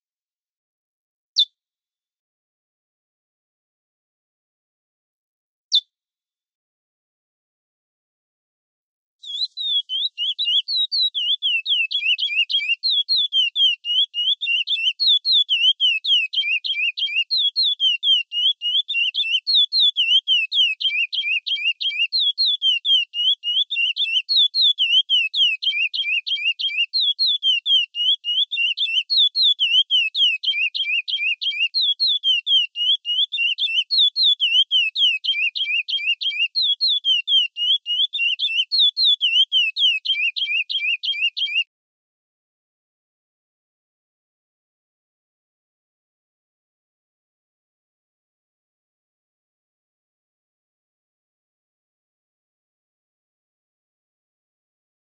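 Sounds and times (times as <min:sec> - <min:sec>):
finch singing whistled notes: 0:09.2 - 0:41.7.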